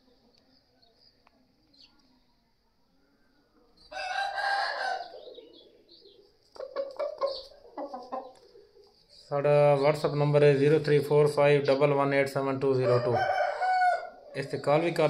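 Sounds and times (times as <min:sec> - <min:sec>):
rooster crowing: 0:03.9 - 0:05.2, 0:12.8 - 0:14.2
chicken clucking: 0:03.9 - 0:09.1.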